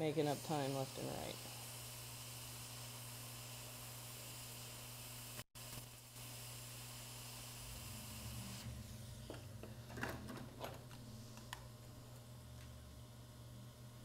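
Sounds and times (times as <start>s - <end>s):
hot air nozzle hissing: 0.0s - 9.0s.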